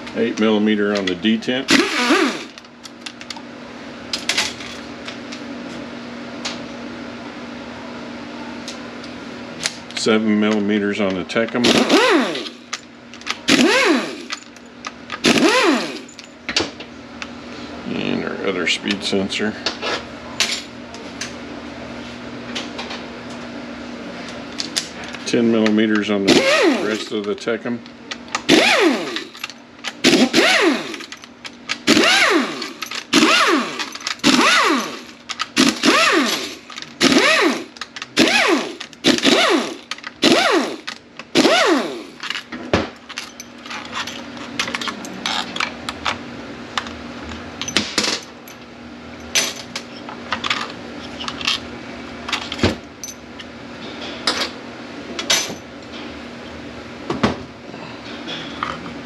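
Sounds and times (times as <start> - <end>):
steady low hum: 0.0 - 59.0
power tool bursts: 1.7 - 2.6, 11.6 - 12.6, 13.5 - 14.4, 15.2 - 16.1, 26.3 - 27.1, 28.5 - 29.4, 30.0 - 31.2, 31.8 - 42.2
metal parts clinking: 11.4 - 16.4, 28.1 - 46.2.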